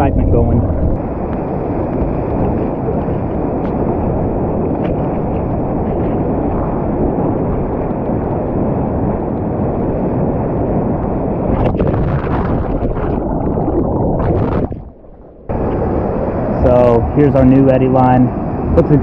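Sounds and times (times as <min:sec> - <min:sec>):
rushing whitewater roar: 0:15.5 - 0:19.0.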